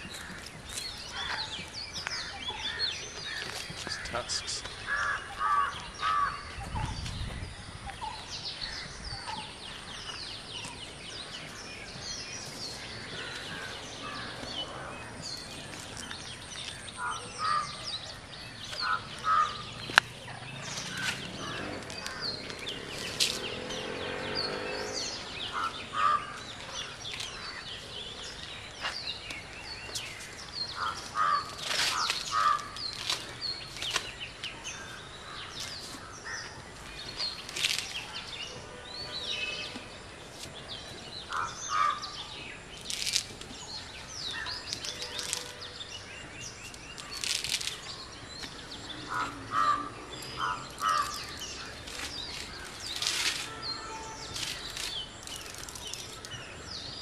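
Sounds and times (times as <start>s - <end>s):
small birds chirping: 0.0s - 57.0s
crows cawing: 2.0s - 6.5s, 17.0s - 17.8s, 18.8s - 19.8s, 25.5s - 26.8s, 30.8s - 32.8s, 41.3s - 42.2s, 49.1s - 51.8s.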